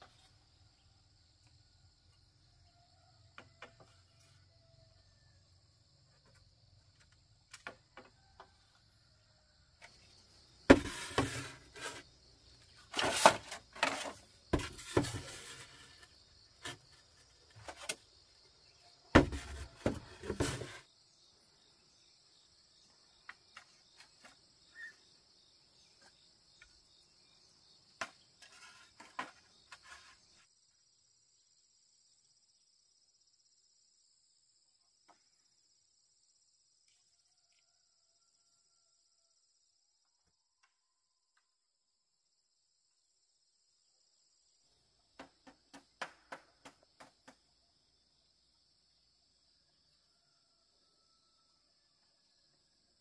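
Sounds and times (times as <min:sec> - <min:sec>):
insects droning: 0:00.0 - 0:53.0
bamboo poles clattering: 0:10.7 - 0:12.0, 0:12.6 - 0:18.0, 0:19.2 - 0:20.8, 0:28.0 - 0:30.2.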